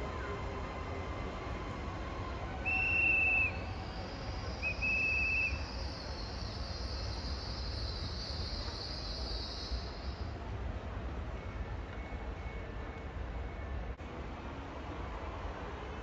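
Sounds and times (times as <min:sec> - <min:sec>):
pea whistle blasts: 0:02.6 - 0:03.7, 0:04.6 - 0:05.6.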